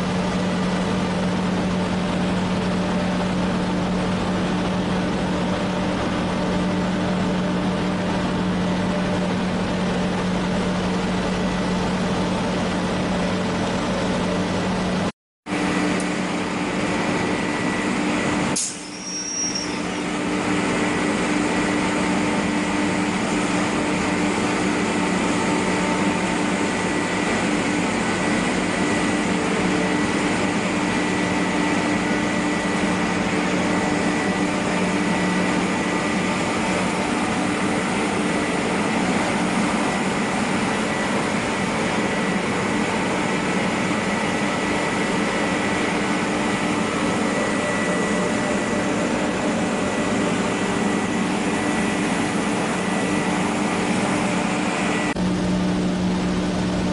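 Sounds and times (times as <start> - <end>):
vacuum blower rushing air: 19.7 - 56.9.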